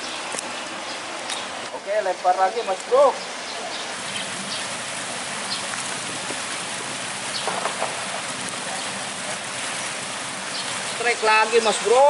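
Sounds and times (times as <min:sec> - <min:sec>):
river water churning and splashing: 0:00.0 - 0:12.0.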